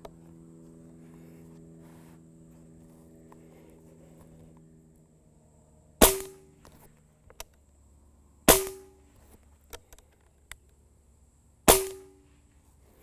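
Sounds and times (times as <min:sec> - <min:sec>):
air rifle shot crack: 0:06.0 - 0:06.6, 0:08.5 - 0:09.0, 0:11.7 - 0:12.2.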